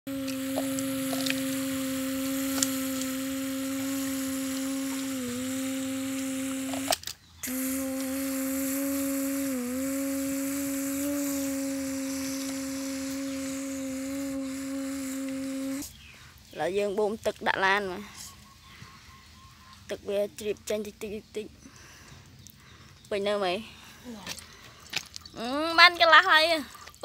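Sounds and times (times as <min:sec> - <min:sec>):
child humming: 0:00.1 - 0:15.9.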